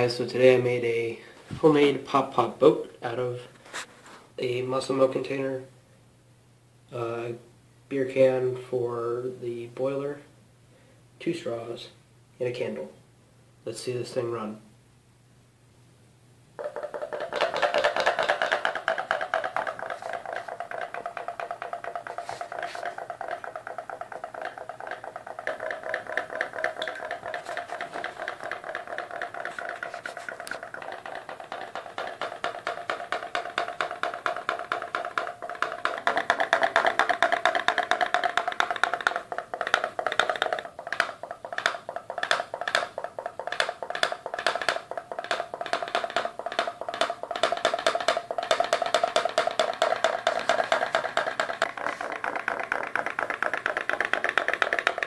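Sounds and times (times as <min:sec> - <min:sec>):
pop-pop boat putt-putting: 0:16.6 - 0:55.0.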